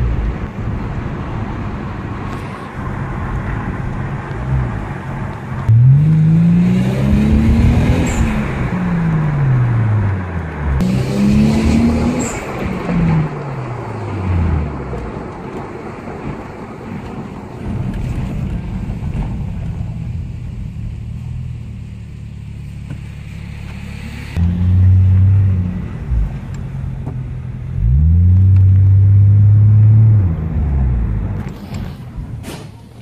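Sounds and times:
car engine accelerating: 3.6s - 15.3s, 20.1s - 31.6s.

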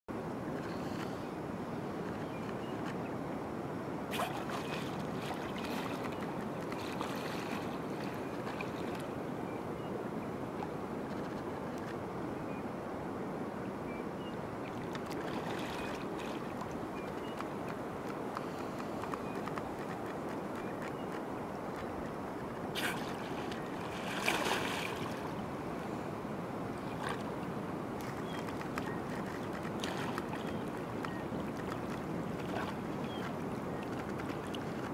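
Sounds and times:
water washing at shoreline: 0.5s - 12.0s, 14.4s - 34.9s
small waves lapping: 4.0s - 9.4s, 14.4s - 34.9s
sea lion splashing: 4.1s - 9.0s, 22.7s - 25.4s
water splashing: 4.1s - 9.1s, 14.7s - 17.7s, 22.7s - 25.5s, 28.0s - 34.9s.

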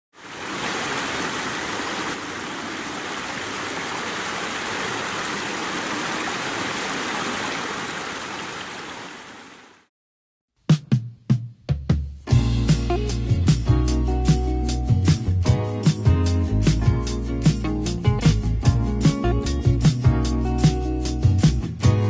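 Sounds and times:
water running over rocks: 0.2s - 9.8s.

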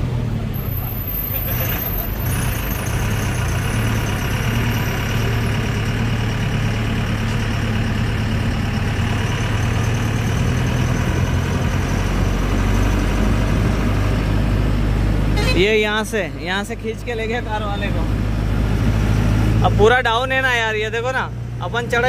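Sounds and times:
road noise: 0.0s - 22.0s
truck engine running: 0.0s - 22.0s.

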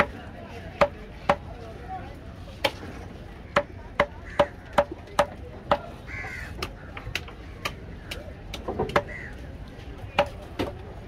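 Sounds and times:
crow cawing: 4.2s - 4.6s, 6.1s - 7.8s, 9.0s - 9.4s.

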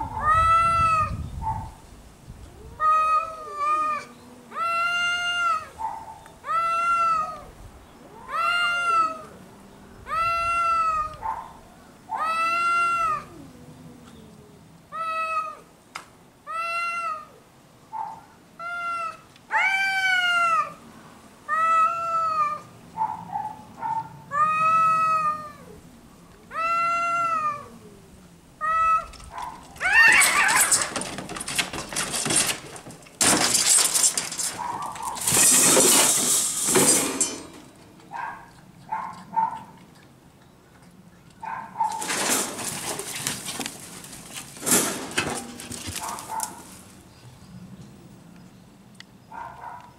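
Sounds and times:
cats yowling: 0.0s - 1.7s, 2.5s - 11.5s, 12.1s - 14.3s, 14.9s - 15.7s, 16.5s - 17.4s, 18.6s - 20.8s, 21.5s - 22.7s, 23.8s - 31.8s
cat fight screech: 29.8s - 31.0s.

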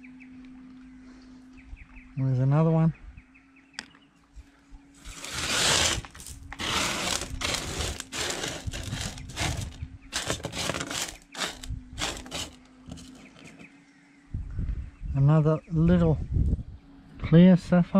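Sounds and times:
gravel scraping on metal table: 5.0s - 13.7s.

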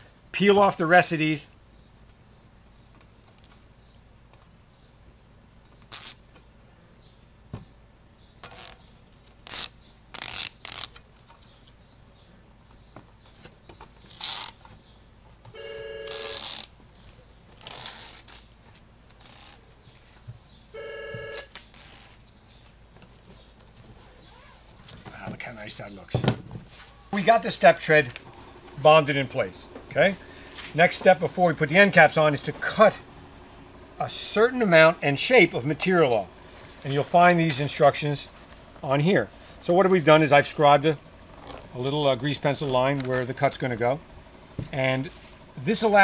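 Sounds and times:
tape liner ripping off: 5.9s - 6.3s, 8.4s - 11.1s, 14.1s - 14.6s, 16.1s - 16.8s, 17.5s - 18.5s, 19.1s - 19.7s, 21.4s - 22.8s
telephone ringing: 15.6s - 16.4s, 20.8s - 21.5s.

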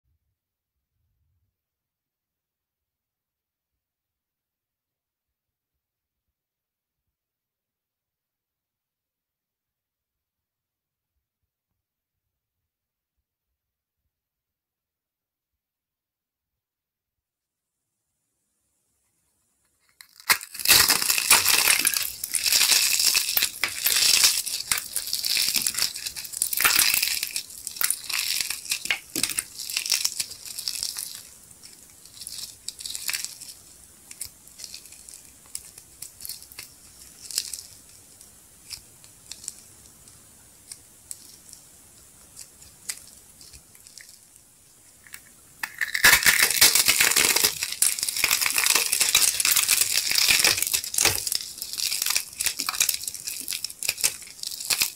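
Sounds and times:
soap ball crunching: 19.9s - 44.3s, 44.9s - 54.9s.

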